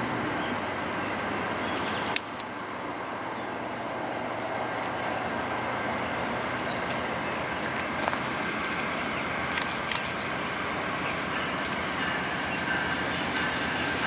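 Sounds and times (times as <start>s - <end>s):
diesel locomotive rumbling: 0.0s - 14.0s
sharp clicks: 9.5s - 10.2s.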